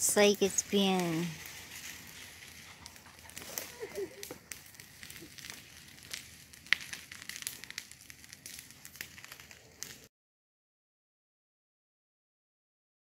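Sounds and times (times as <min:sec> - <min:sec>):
crackling and sharp clicks: 0:00.5 - 0:10.1.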